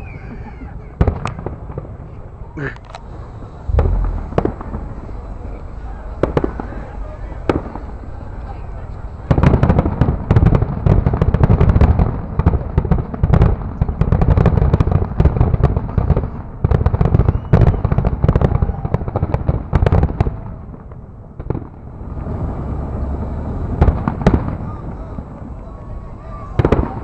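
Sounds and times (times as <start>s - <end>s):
fireworks bursting: 0.0s - 27.0s
deep rumble: 1.4s - 14.2s.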